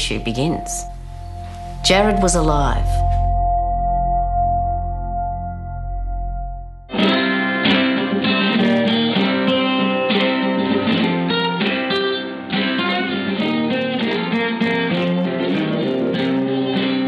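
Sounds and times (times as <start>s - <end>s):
acoustic guitar picked melody: 6.9s - 17.0s.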